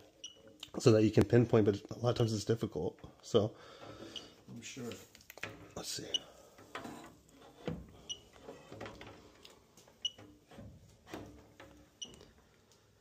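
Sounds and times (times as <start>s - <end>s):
soft knocks and rustles: 6.6s - 12.6s.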